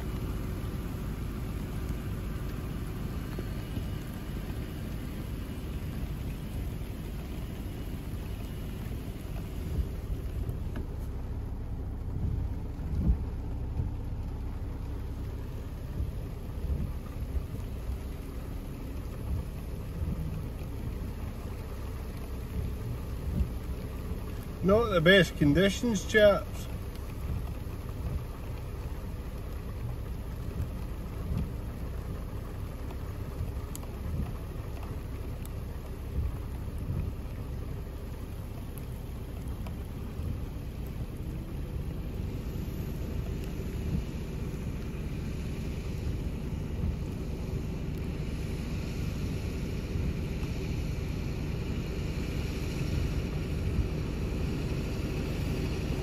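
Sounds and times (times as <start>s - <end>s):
wind buffeting microphone: 0.0s - 24.5s
heavy rain: 0.0s - 56.0s.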